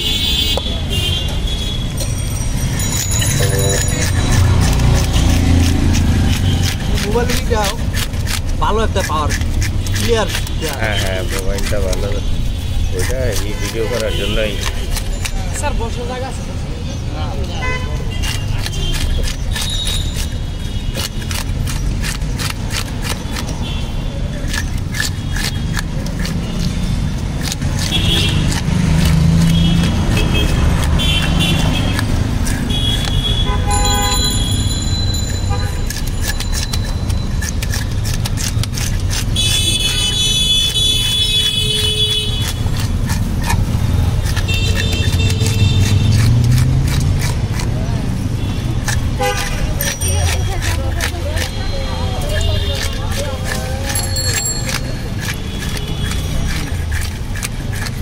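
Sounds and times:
fish scaler rasping scales: 0.0s - 58.0s
low traffic rumble: 0.0s - 58.0s
shrill horn-like tone: 32.7s - 36.1s.

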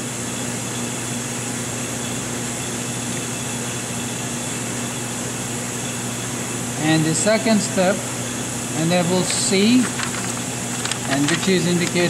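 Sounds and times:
low electrical hum: 0.0s - 12.0s
fan whirring: 3.0s - 12.0s.

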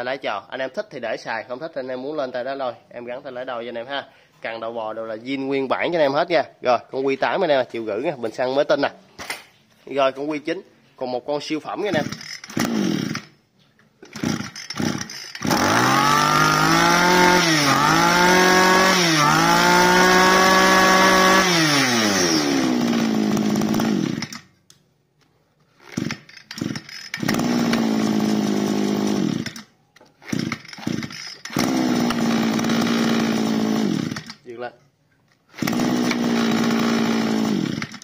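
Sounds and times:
brush cutter engine running: 11.9s - 13.3s, 14.0s - 24.5s, 25.8s - 34.5s, 35.5s - 38.0s.

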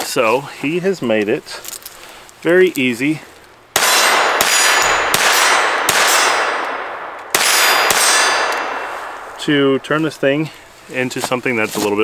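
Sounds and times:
pistol gunshots: 3.7s - 9.6s
metallic ring of steel targets: 3.8s - 9.9s.

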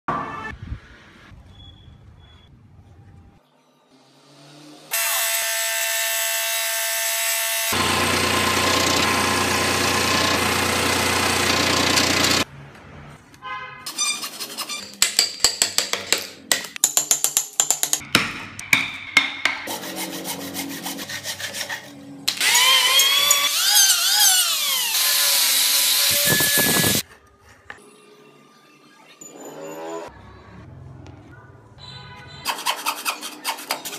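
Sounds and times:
power tool cutting wood: 4.8s - 12.5s, 22.3s - 27.0s
tool whirring: 4.9s - 12.5s, 22.3s - 27.0s
chisel knocking on wood: 15.0s - 19.7s.

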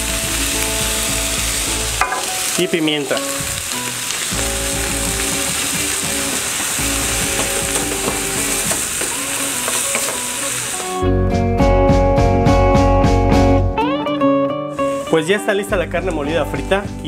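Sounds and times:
meat sizzling in a skillet: 0.0s - 11.0s, 14.7s - 15.4s
guitar music: 0.0s - 17.0s.

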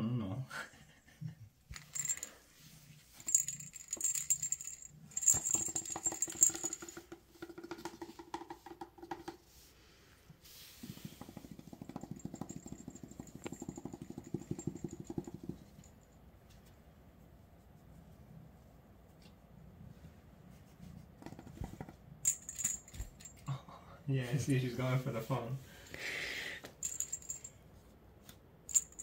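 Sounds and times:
toy jingling and clicking: 1.8s - 2.4s, 3.2s - 7.1s, 12.0s - 15.9s, 22.2s - 23.5s, 26.6s - 27.5s, 28.7s - 29.0s.

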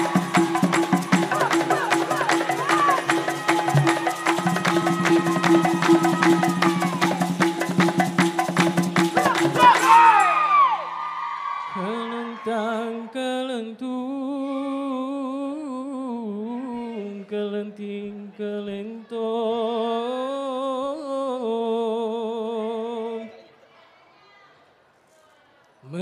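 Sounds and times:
person singing unaccompanied: 0.0s - 7.6s, 11.7s - 23.4s.

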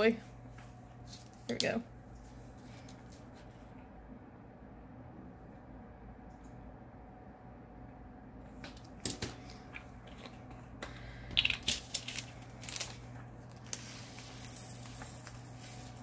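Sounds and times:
plastic bags crinkling: 11.4s - 15.4s.

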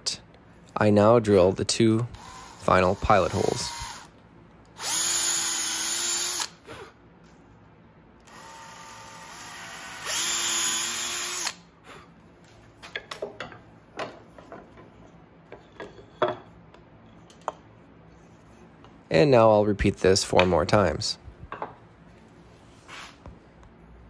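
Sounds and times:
cordless drill boring wood: 2.1s - 4.1s, 4.8s - 6.6s, 8.3s - 11.6s.

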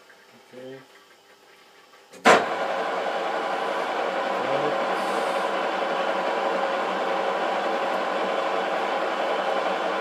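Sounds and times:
metal lathe running: 2.5s - 10.0s.

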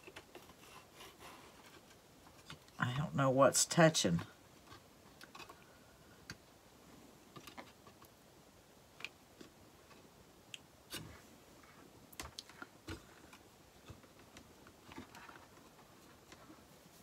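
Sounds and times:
faint clicks and taps: 4.2s - 6.5s, 9.0s - 16.7s.

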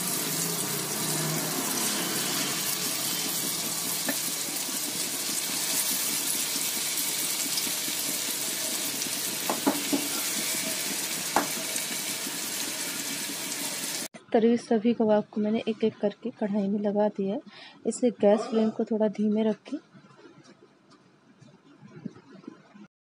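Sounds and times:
patties sizzling in oil: 0.0s - 14.1s.

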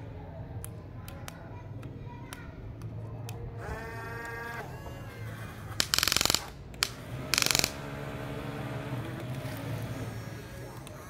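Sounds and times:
electric motors whining: 3.6s - 11.0s
gear drive ratcheting clicks: 5.8s - 7.8s.

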